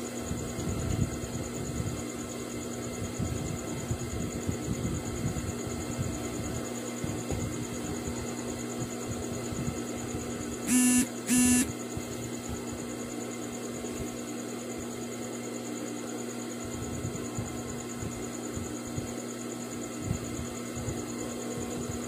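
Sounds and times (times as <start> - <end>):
machine stitching bursts: 10.7 - 11.7
sewing machine motor humming: 10.7 - 11.7.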